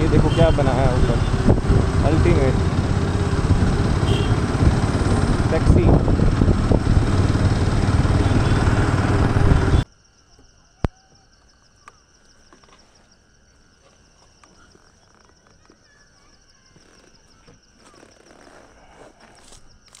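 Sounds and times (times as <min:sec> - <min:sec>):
motorcycle engine: 0:00.0 - 0:09.8
wind noise: 0:00.0 - 0:09.8.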